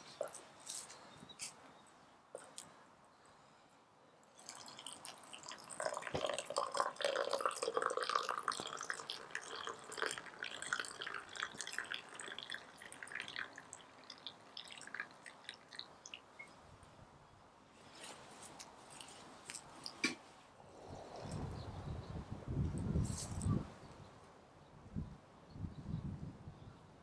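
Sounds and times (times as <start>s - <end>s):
water dripping and splashing: 4.4s - 16.3s.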